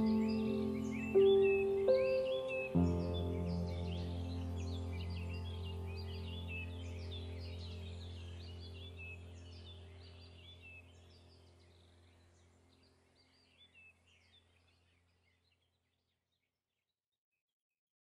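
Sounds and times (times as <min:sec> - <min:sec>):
low steady hum: 0:00.0 - 0:14.2
birds chirping: 0:00.0 - 0:16.1.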